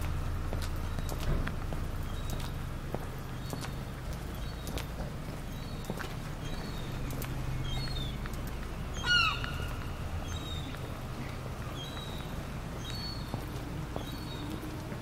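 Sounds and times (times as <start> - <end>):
footsteps on pavement: 0.0 - 15.0
small birds chirping: 0.0 - 15.0
steady low hum: 0.0 - 15.0.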